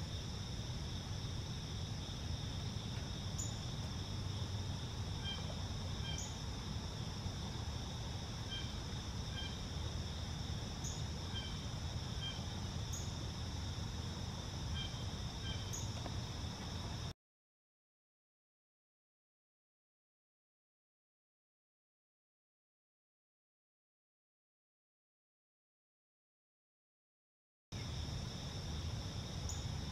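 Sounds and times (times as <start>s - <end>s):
crickets and insects trilling: 0.0s - 17.1s, 27.8s - 29.9s
low background rumble: 0.0s - 17.1s.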